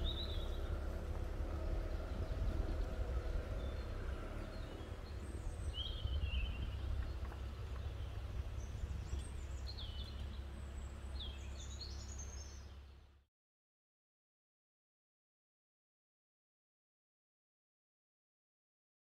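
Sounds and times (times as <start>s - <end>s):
steady low rumble: 0.0s - 11.9s
birds chirping: 0.0s - 13.1s
car engine pulling away: 0.0s - 13.1s.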